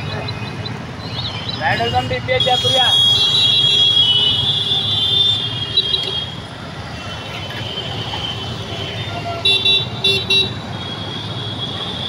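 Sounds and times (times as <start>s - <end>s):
road traffic: 0.0s - 12.0s
vehicle horn toots: 1.9s - 6.4s.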